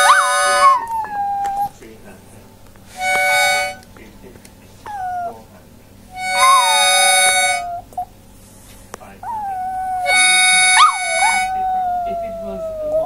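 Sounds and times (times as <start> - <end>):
dog howling: 0.0 - 1.8, 4.9 - 8.1, 9.2 - 13.0
held musical chords: 0.0 - 13.0.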